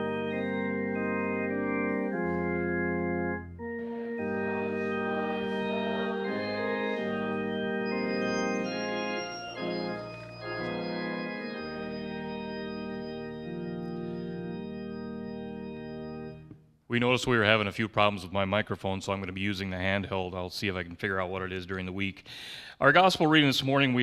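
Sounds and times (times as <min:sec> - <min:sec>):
church organ playing hymn chords: 0:00.0 - 0:16.8.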